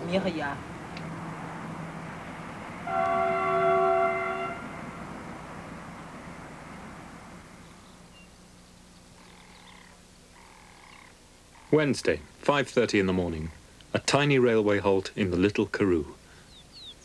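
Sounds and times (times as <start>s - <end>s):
steady background noise: 0.0s - 17.0s
train horn chord: 2.8s - 5.1s.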